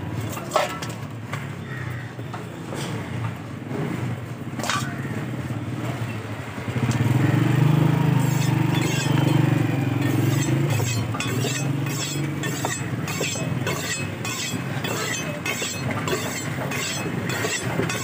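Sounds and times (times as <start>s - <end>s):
engine droning: 3.7s - 18.0s
cleaver chopping on wooden block: 10.0s - 18.0s.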